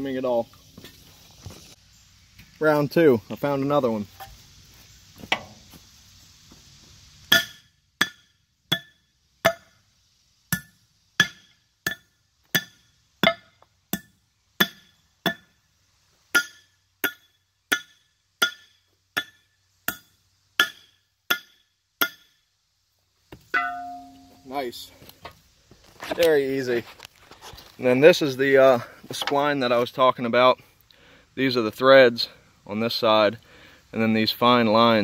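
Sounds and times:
hammer striking steel: 7.3 - 9.8, 10.5 - 15.5, 16.3 - 22.4, 23.5 - 24.4.

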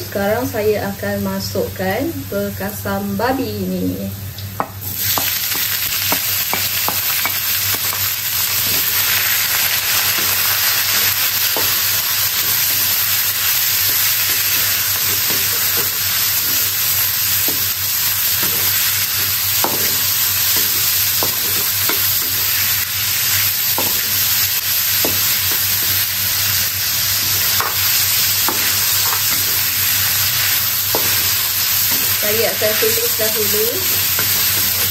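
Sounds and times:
meat sizzling in oil: 4.7 - 34.9
spatula scraping wok: 7.8 - 34.9.

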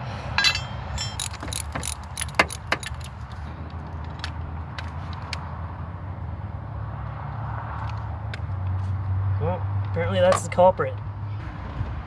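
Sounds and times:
metal tools and parts clinking: 0.4 - 3.4.

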